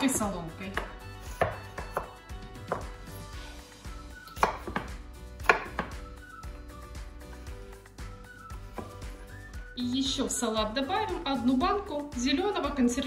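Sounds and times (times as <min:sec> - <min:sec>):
knife chopping on wooden board: 0:00.7 - 0:03.1, 0:04.2 - 0:06.1, 0:08.7 - 0:09.1.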